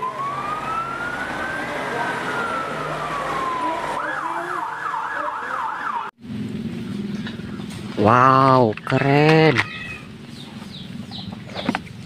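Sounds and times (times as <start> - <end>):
fire truck siren wailing and yelping: 0.0 - 6.2.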